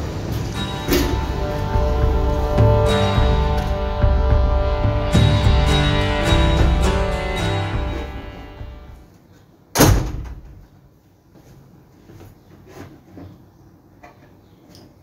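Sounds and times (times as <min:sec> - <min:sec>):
background music: 0:00.0 - 0:09.1
loud slam: 0:09.8 - 0:10.6.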